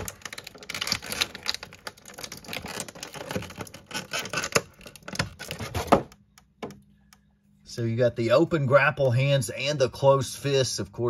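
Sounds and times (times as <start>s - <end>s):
plastic packaging crinkling: 0.0s - 6.0s.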